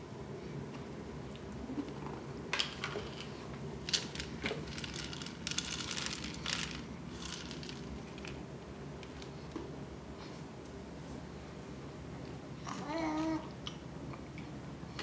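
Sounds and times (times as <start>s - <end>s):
snacks rattling in plastic canister: 3.9s - 8.4s.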